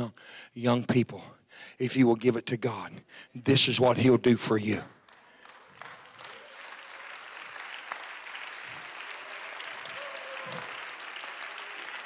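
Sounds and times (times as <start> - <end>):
congregation applauding: 4.9 - 12.0.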